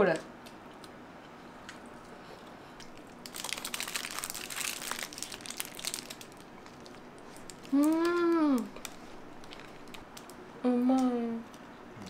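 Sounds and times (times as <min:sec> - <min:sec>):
paper wrapper crinkling: 0:02.9 - 0:10.4.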